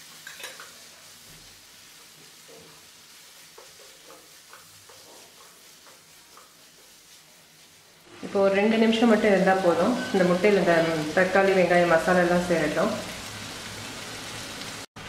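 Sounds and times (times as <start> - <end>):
spatula scraping and tapping pan: 0.0 - 7.8
faint sizzling: 0.0 - 14.9.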